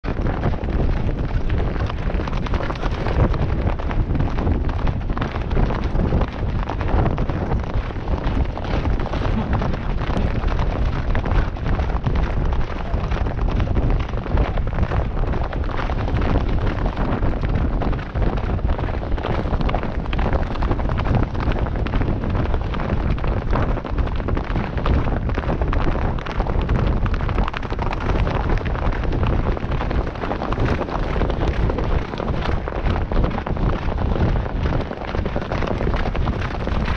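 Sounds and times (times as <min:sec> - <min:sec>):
wind buffeting microphone: 0:00.0 - 0:36.9.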